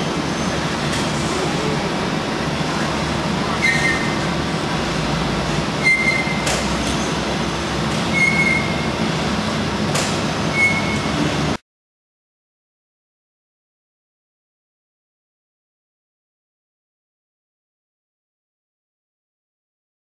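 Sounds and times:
high squealing tone: 3.5s - 4.3s, 5.8s - 7.2s, 8.1s - 9.0s, 10.5s - 11.3s.

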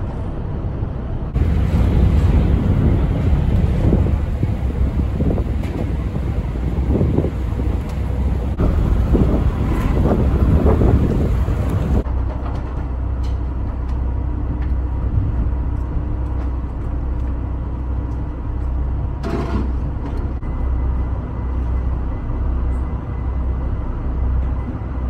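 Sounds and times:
ferry engine rumble: 0.0s - 25.0s
faint whine tones: 20.0s - 25.0s.

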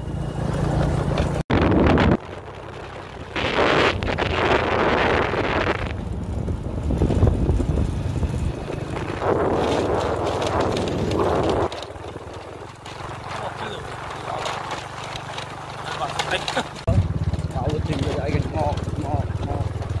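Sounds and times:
motorbike engine rumbling: 0.0s - 20.0s
wind buffeting microphone: 1.0s - 15.6s.

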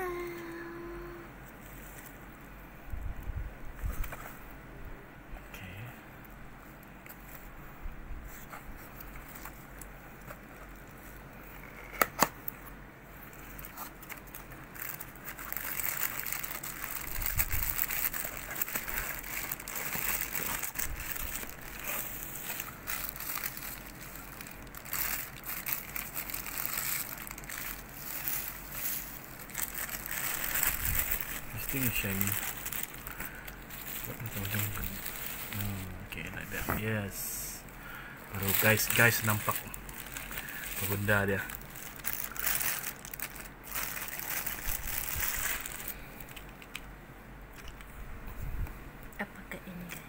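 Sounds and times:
plastic wrapping crinkling: 13.2s - 37.6s, 38.2s - 46.8s.

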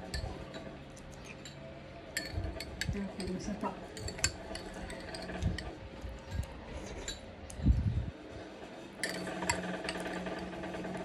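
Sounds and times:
spoon clinking against glass: 2.2s - 3.4s.

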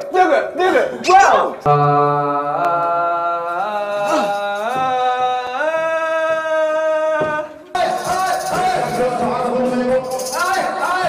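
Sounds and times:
man singing into microphone: 1.7s - 11.0s.

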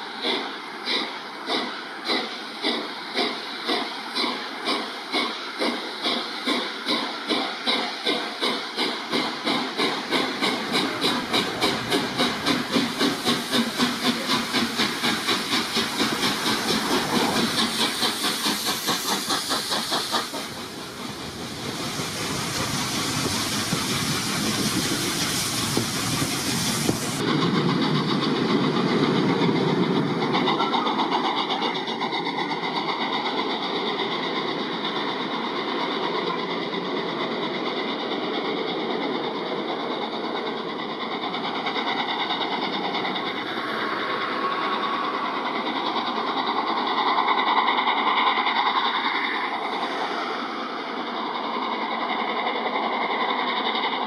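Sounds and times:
steam locomotive exhaust beats: 0.0s - 54.0s
train coaches rolling: 0.0s - 54.0s.

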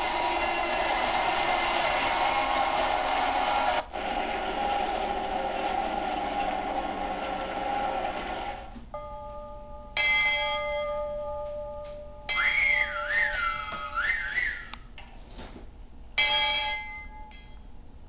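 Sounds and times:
toy train whistle: 0.0s - 8.6s, 12.3s - 14.8s
toy train motor whirring: 0.0s - 8.8s.

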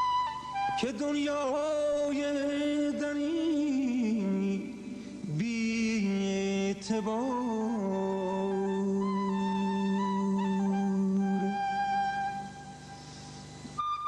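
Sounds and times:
classical melody in long held notes: 7.1s - 13.0s, 13.6s - 14.0s.

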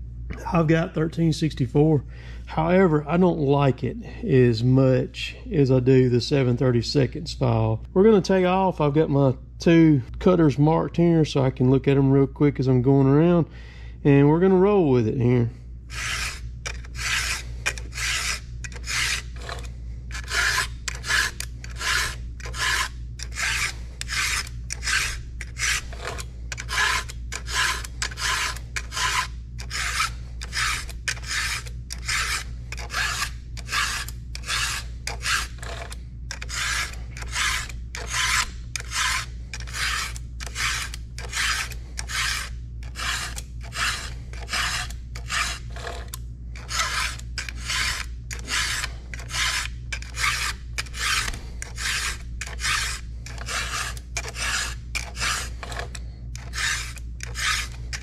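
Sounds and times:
file rasping across chain cutters: 15.9s - 58.0s.

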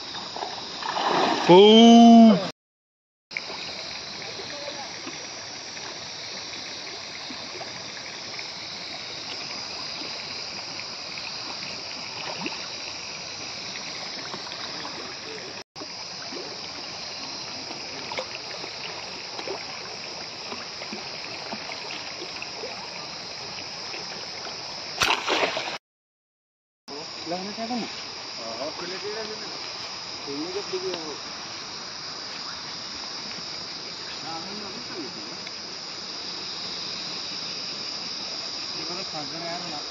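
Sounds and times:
water running and splashing: 0.0s - 1.8s, 3.3s - 25.8s.

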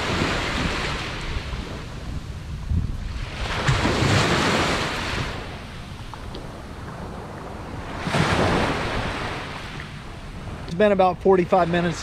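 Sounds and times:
small surf waves washing up beach: 0.0s - 1.9s, 3.1s - 10.7s.

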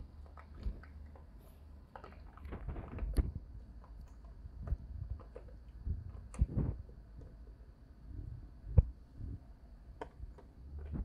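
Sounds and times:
puppy chewing rubber ball: 0.0s - 7.6s.

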